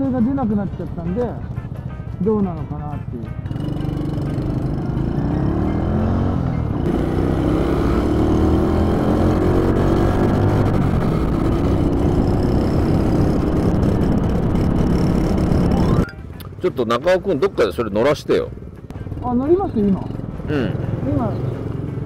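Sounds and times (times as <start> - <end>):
motorcycle engine accelerating: 3.4 - 16.1.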